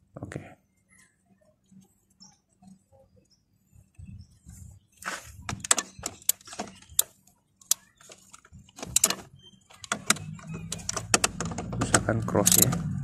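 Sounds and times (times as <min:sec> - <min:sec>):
socket clinking on bolts: 0:07.7 - 0:12.8
ratchet wrench clicking: 0:12.4 - 0:12.7.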